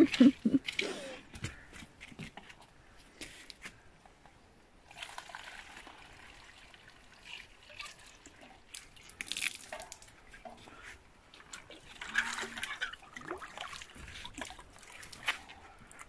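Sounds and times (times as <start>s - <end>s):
water trickling into a bottle: 4.9s - 10.6s.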